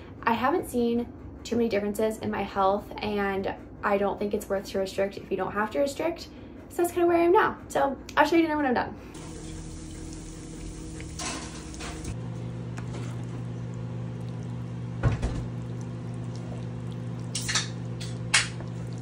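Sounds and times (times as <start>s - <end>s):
steady low hum: 9.0s - 19.0s
sauce sizzling in a frying pan: 9.2s - 12.2s
wooden spatula stirring: 9.4s - 19.0s.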